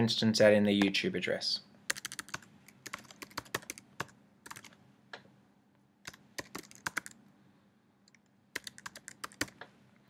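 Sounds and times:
computer keyboard typing: 1.9 - 4.8, 6.0 - 7.2, 8.1 - 9.6.

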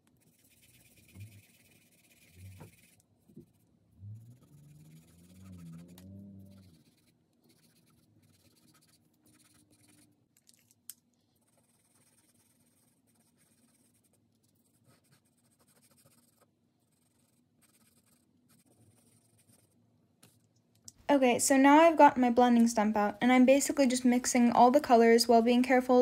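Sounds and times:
pencil scratching on paper: 0.0 - 3.7, 4.3 - 10.2, 11.3 - 19.8.

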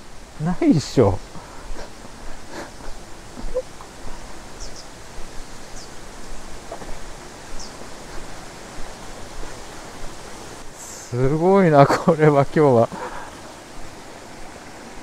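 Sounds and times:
river rushing over a ford: 0.0 - 15.0
bird chirping faintly: 2.7 - 6.0, 7.4 - 8.3.

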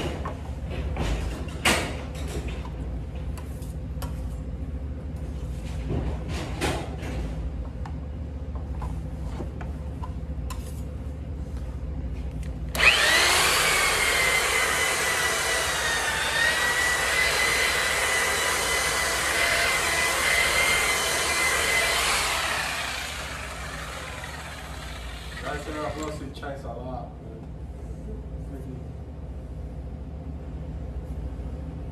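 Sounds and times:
electric polisher whining: 12.8 - 26.2.

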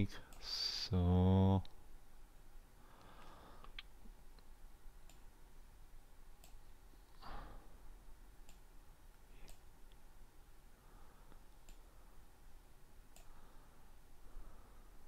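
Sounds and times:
computer mouse clicks: 6.4 - 7.2, 8.4 - 8.7, 9.4 - 10.0, 11.6 - 11.9.

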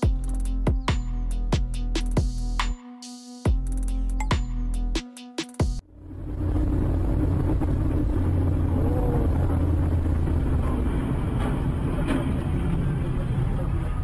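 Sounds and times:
car cabin road rumble: 6.0 - 14.0.

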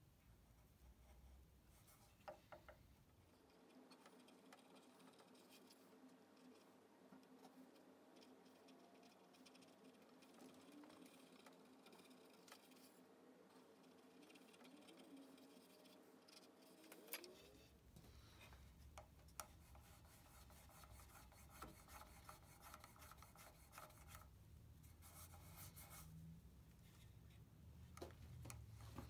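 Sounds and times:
hands and wire rubbing wood: 1.7 - 26.2.

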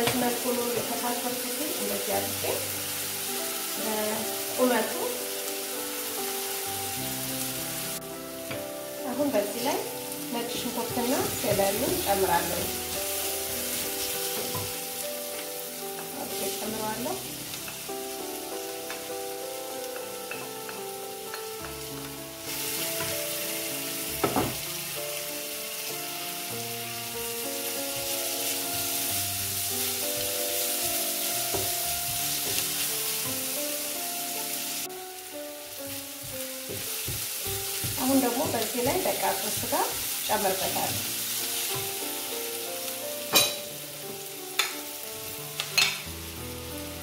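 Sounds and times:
soft music with held notes: 0.0 - 47.0
vegetables sizzling in oil: 0.0 - 47.0.

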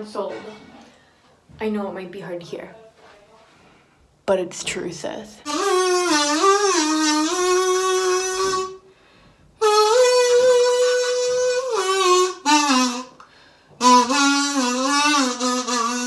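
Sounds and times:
kazoo playing a tune: 5.4 - 8.9, 9.6 - 16.0.

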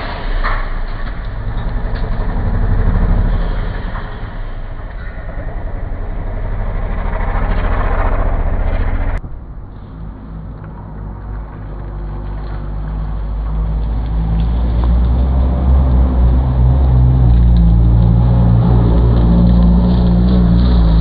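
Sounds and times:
approaching vehicle engine: 0.0 - 21.0
vehicle engine running hard: 0.0 - 21.0.

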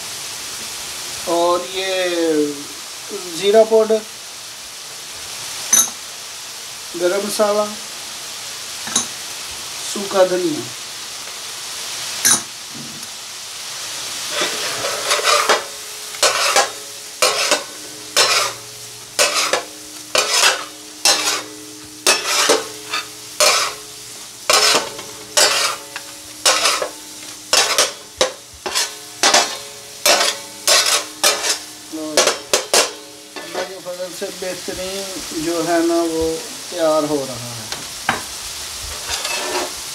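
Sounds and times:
meat sizzling in oil: 0.0 - 39.9
metal spatula scraping pan: 14.2 - 33.9, 38.9 - 39.8.

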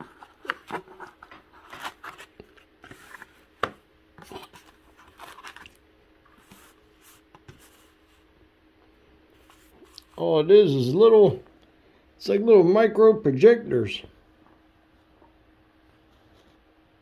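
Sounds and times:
plastic scrapes and rustles: 0.0 - 3.5, 4.2 - 8.2.

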